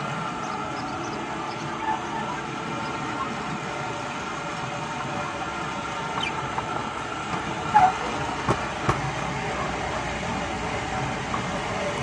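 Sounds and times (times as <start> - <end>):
wheel noise: 0.0 - 12.0
short squeak: 7.7 - 8.0.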